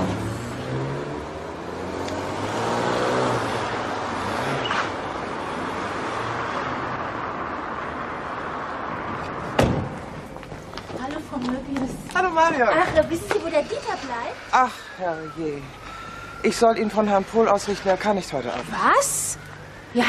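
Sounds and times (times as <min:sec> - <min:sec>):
car engine: 0:00.0 - 0:10.9
road traffic noise: 0:00.0 - 0:20.0
sharp knock: 0:09.6 - 0:10.0.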